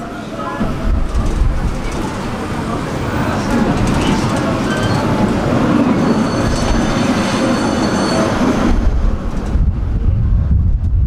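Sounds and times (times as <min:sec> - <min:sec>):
tram wheels rolling on rails: 0:00.0 - 0:11.0
faint high wheel squeal: 0:04.6 - 0:05.2, 0:05.9 - 0:08.6.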